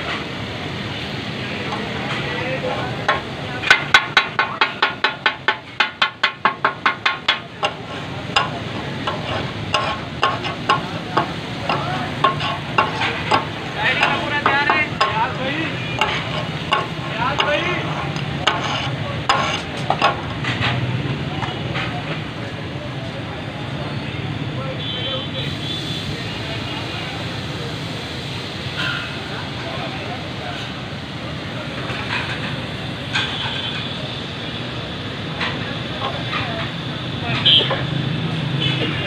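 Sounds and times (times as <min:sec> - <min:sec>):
metal spatulas clacking on griddle: 0:03.0 - 0:20.8
meat sizzling: 0:07.8 - 0:20.3.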